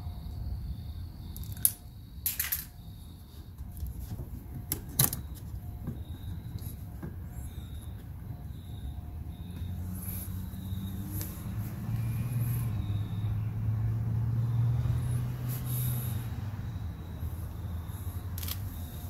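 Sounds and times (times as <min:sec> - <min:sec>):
passing vehicle engine rumble: 0:06.6 - 0:19.0.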